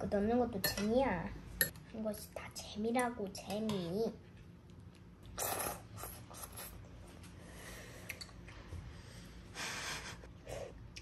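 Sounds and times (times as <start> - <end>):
child slurping noodles: 5.4 - 6.8.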